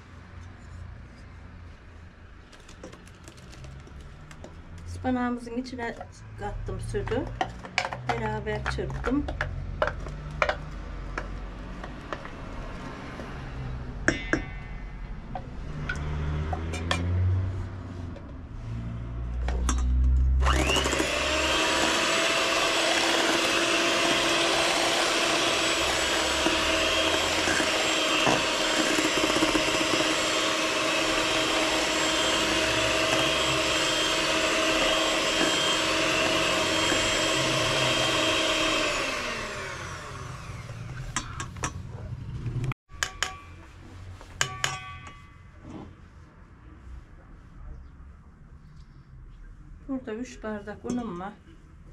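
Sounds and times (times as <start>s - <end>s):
handling clicks and knocks: 7.1s - 12.4s
blender motor whining: 20.4s - 41.0s.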